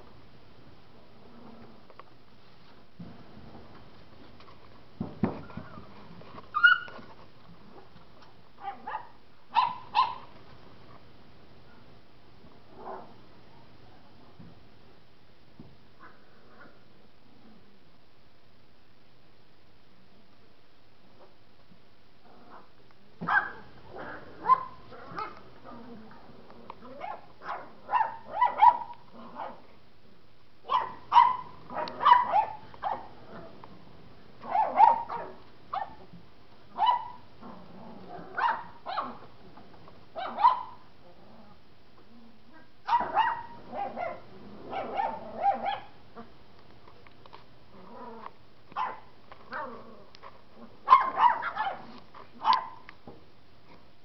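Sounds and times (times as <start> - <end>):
puppies yapping: 6.6 - 7.0.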